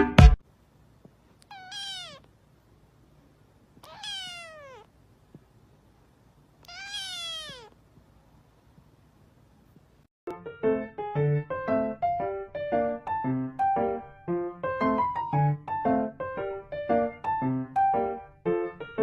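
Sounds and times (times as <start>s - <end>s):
kitten meowing: 1.4s - 2.3s, 3.8s - 4.9s, 6.6s - 7.8s.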